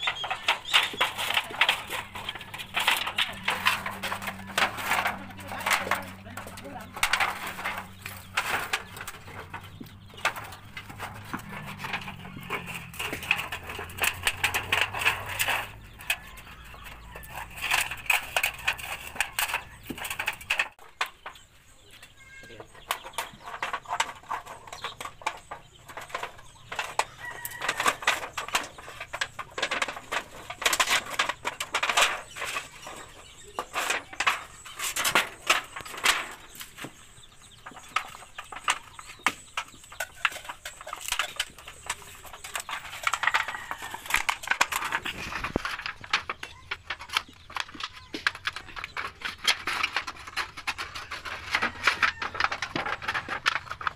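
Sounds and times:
chickens clucking: 0.0s - 53.9s
rooster crowing: 27.1s - 28.2s.

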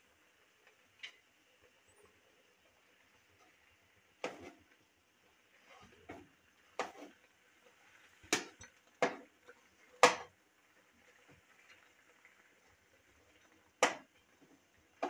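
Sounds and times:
metal spatula scraping a wok: 4.2s - 4.6s, 6.8s - 7.2s.

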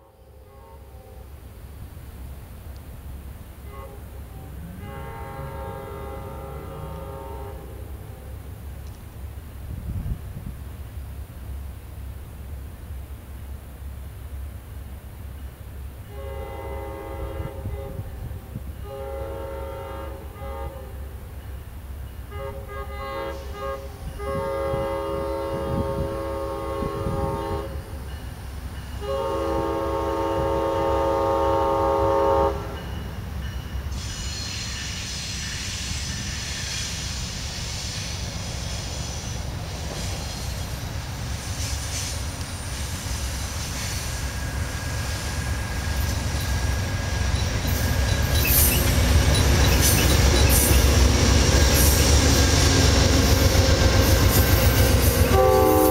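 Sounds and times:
train air horn blasts: 0.0s - 1.4s, 3.6s - 8.4s, 16.0s - 21.2s, 22.3s - 28.0s, 29.0s - 33.0s, 54.4s - 55.9s
train rumble and rail noise: 0.0s - 55.9s
train wheel clatter: 39.5s - 55.9s.

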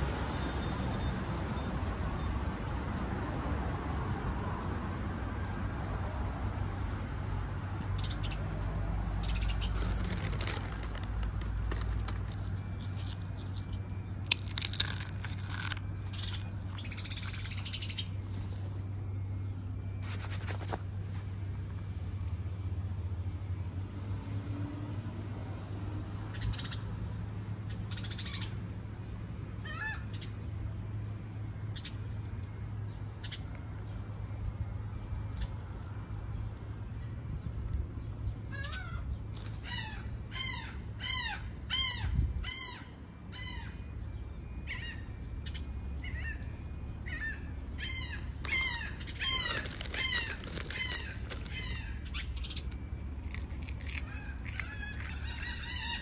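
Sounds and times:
steady low hum: 4.2s - 56.0s
chip bag crinkling: 9.6s - 18.8s, 48.4s - 56.0s
wavering bird call: 46.0s - 56.0s.

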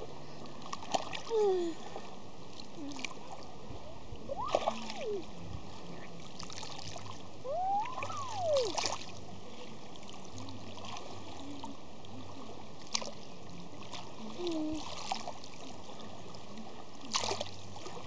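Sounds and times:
water splashing: 0.0s - 3.5s, 4.2s - 18.0s
child calling: 7.5s - 8.8s.

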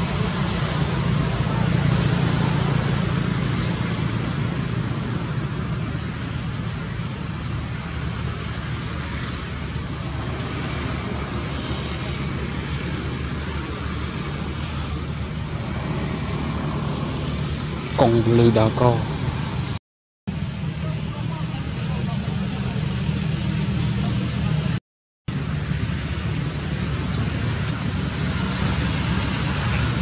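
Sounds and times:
low rumble with hiss: 0.0s - 30.0s.

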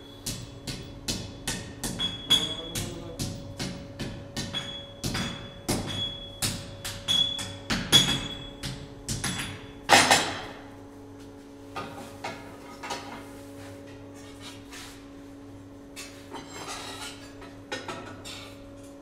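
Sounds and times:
hammer striking steel on anvil: 0.2s - 10.5s.

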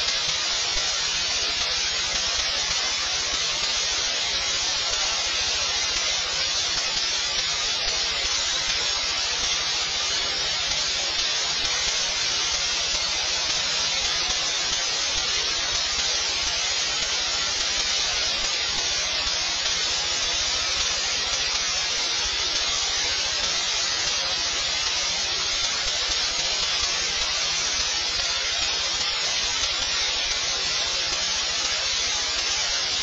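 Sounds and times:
steady static hiss: 0.0s - 33.0s.

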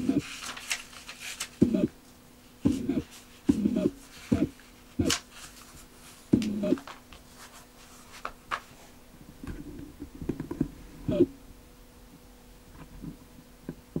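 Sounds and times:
paper rustling: 0.0s - 9.0s
faint steady hum: 0.0s - 14.0s.

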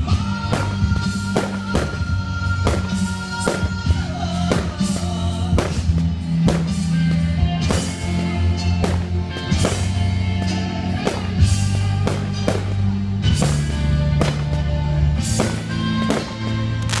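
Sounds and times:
deep bass notes: 0.0s - 17.0s
steady drum beat: 0.3s - 10.0s.

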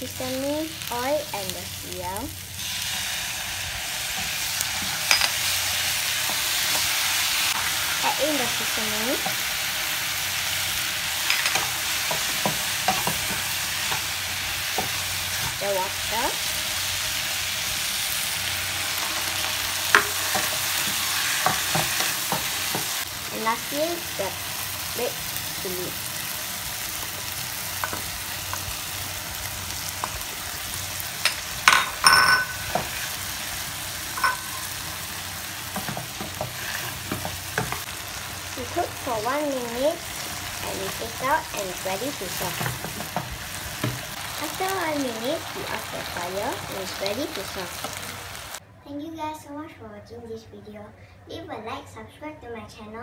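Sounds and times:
okra sizzling in a pan: 0.0s - 48.6s
wooden spatula scraping a pan: 35.7s - 37.9s.

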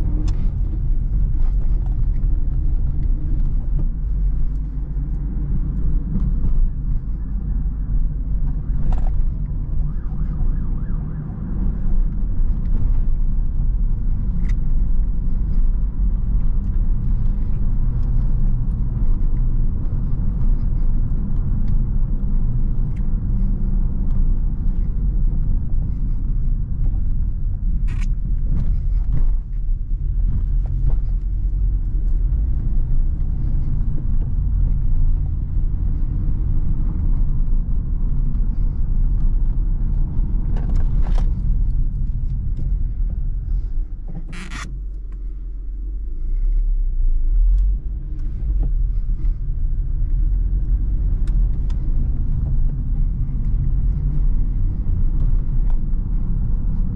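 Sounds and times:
car engine rumble: 0.0s - 56.9s.

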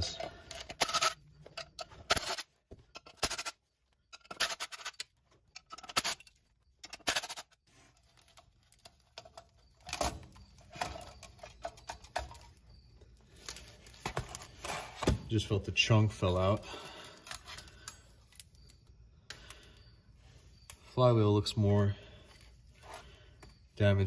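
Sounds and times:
metal tools clinking: 0.0s - 7.6s, 8.2s - 14.5s.

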